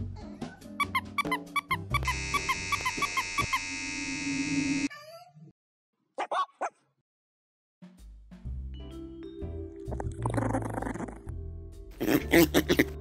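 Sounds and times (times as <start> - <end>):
harsh buzzer: 1.9 - 4.9
cartoon gulp: 9.9 - 11.3, 12.0 - 13.0.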